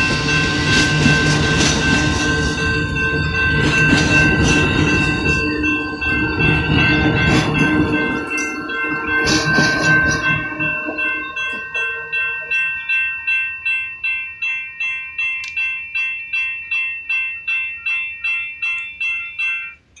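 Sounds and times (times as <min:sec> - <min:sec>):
train wheels rumbling: 0:00.0 - 0:14.5
crossing warning bell ringing: 0:00.0 - 0:20.0.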